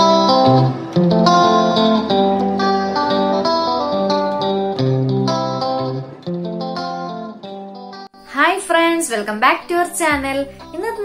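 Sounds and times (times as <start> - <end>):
plucked string melody: 0.0 - 8.2, 9.5 - 11.0
low musical accompaniment: 0.0 - 11.0.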